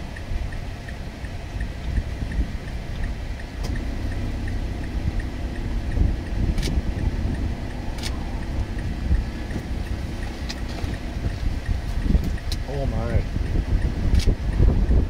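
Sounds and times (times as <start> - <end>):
car engine rumbling inside cabin: 0.0 - 15.0
faint regular ticking: 0.0 - 15.0
short sharp clicks: 8.0 - 8.2, 14.1 - 14.4.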